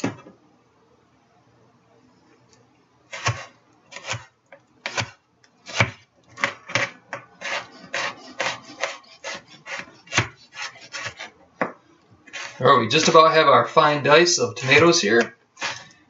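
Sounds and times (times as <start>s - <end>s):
knife chopping on cutting board: 3.1s - 12.6s.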